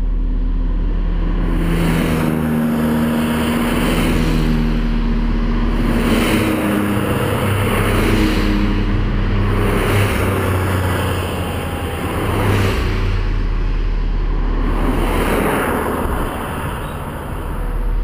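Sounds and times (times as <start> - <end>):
sports cars driving past: 0.0 - 18.0.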